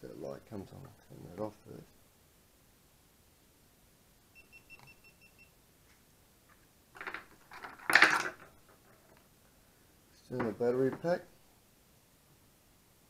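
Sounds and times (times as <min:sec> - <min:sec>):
cable and battery clatter: 0:07.0 - 0:08.6.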